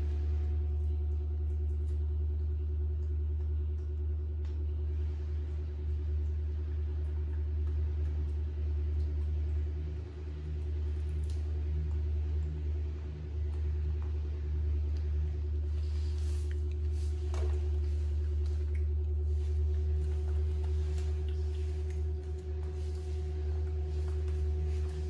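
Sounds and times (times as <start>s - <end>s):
low hum: 0.0s - 25.0s.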